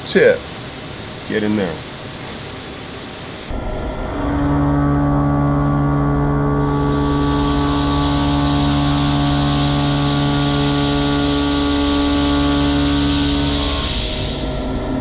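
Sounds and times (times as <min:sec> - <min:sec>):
milling machine humming: 0:00.0 - 0:15.0
cutting hiss: 0:06.6 - 0:15.0.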